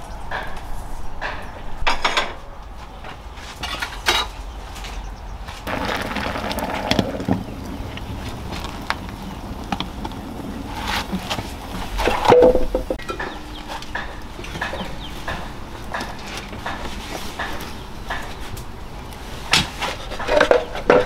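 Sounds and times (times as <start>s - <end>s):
rustling and scraping: 2.8s - 15.3s, 16.0s - 17.8s, 19.3s - 21.0s
objects knocking and clattering: 5.7s - 18.3s, 20.0s - 21.0s.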